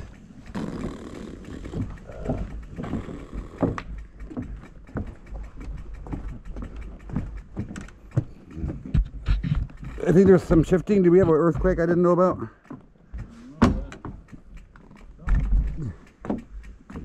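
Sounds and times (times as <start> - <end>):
bike tyres knocking on wooden planks: 0.0 - 17.0.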